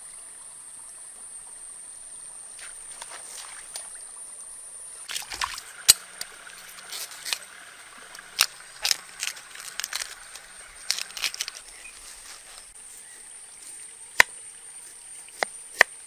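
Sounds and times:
steady high-pitched hiss: 0.0 - 16.0
husk crackling as peeled: 5.1 - 12.6
knife cutting bamboo shoot: 5.2 - 11.8, 14.1 - 16.0.

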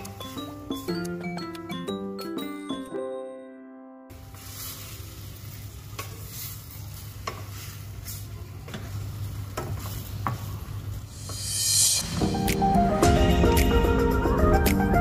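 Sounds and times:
chicken sizzling in pan: 4.1 - 10.6.

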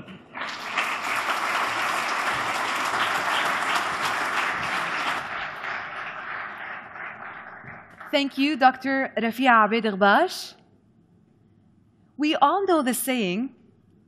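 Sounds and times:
audience applauding: 0.3 - 8.4.

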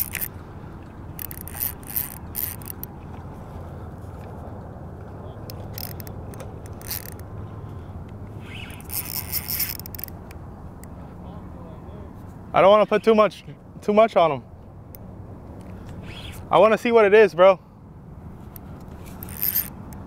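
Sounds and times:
fishing reel drag clicking: 0.0 - 0.4, 1.1 - 2.9, 5.5 - 7.2, 8.4 - 10.9, 18.5 - 20.0.

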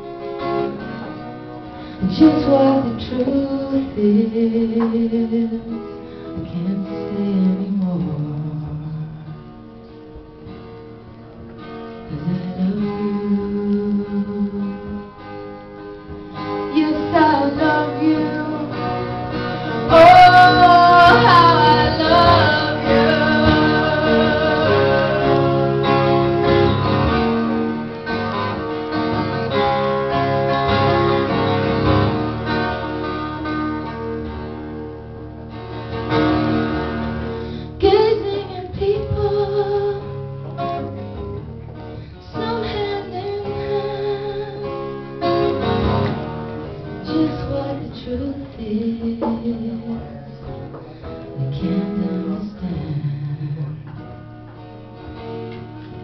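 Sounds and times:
acoustic guitar strummed: 0.0 - 56.0
woman singing: 2.0 - 9.4, 12.1 - 15.1, 16.6 - 19.1, 19.7 - 25.7, 37.8 - 40.2, 42.2 - 45.0, 46.9 - 50.7, 51.4 - 53.9.

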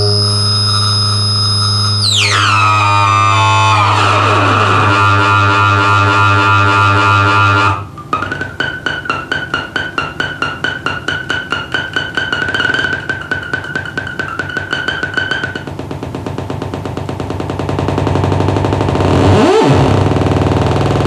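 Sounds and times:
synthesizer drone with falling pitch: 0.0 - 15.7
fast even pulsing rhythm: 0.0 - 18.9
steady high whine: 0.0 - 19.1.

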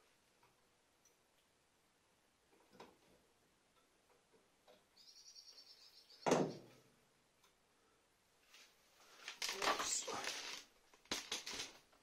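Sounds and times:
rustling: 8.4 - 12.0.

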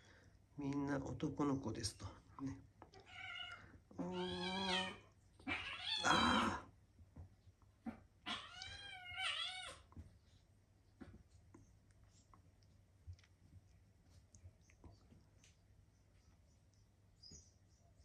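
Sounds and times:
cats yowling: 2.9 - 6.6, 8.2 - 10.0.

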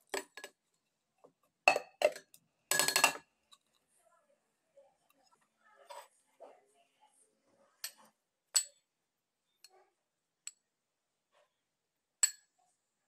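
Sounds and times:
metal spoon clinking glass bowl: 7.8 - 8.8, 12.2 - 12.5.

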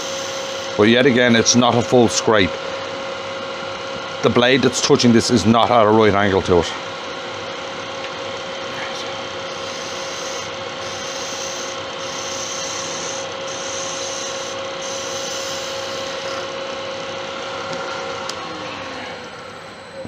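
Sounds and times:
wood lathe humming: 0.0 - 20.0
turning tool scraping hiss: 8.7 - 16.5.

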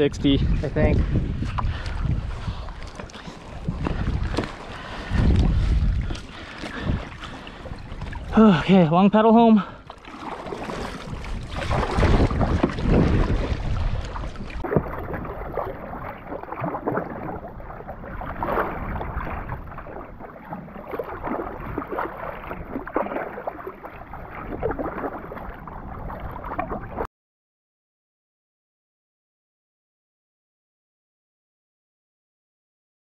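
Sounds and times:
wind rumbling on microphone: 0.0 - 8.4, 10.3 - 27.1
paddle strokes splashing water: 1.0 - 27.1.

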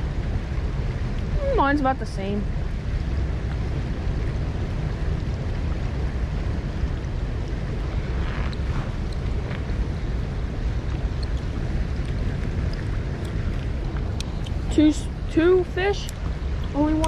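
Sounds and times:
spillway water rushing: 0.0 - 17.0
wind buffeting microphone: 0.0 - 17.0.

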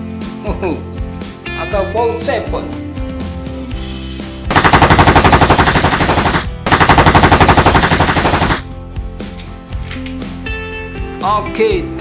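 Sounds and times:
background music: 0.0 - 12.0
toy rifle rapid fire: 4.5 - 8.6.

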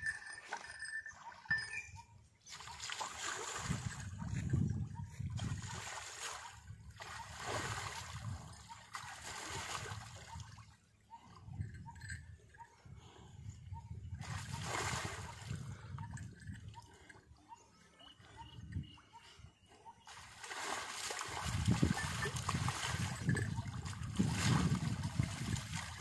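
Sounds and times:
water splashing and sloshing: 2.4 - 4.6, 5.2 - 12.2, 14.2 - 15.8, 20.0 - 26.0.

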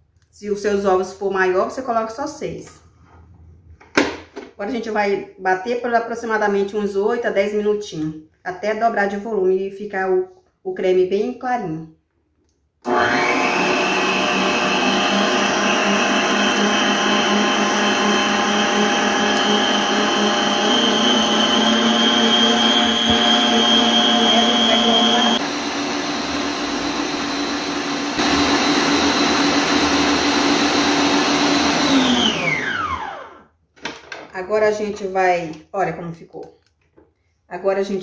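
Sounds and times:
motor winding down: 12.9 - 25.5
stand mixer whisking: 12.9 - 33.3.

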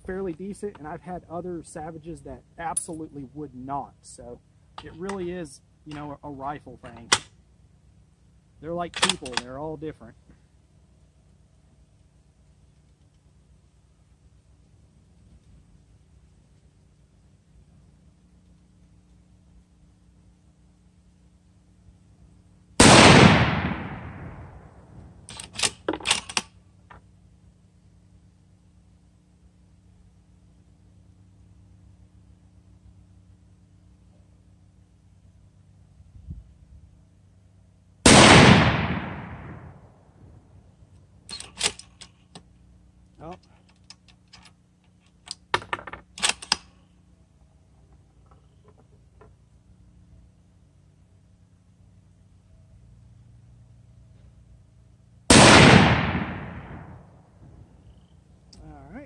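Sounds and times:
rifle bolt clacking: 9.0 - 9.5
rifle shot: 22.8 - 26.5, 38.0 - 39.8, 55.3 - 57.3.

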